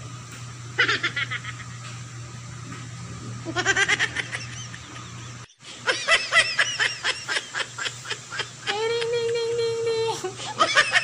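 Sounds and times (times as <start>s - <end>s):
person giggling: 3.5s - 11.0s.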